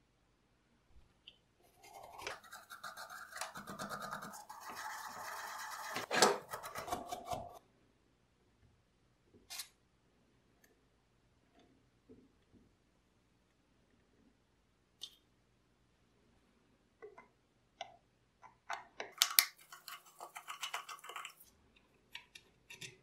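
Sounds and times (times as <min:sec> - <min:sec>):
toothbrush scrubbing metal: 0:01.7 - 0:07.6, 0:19.5 - 0:21.5.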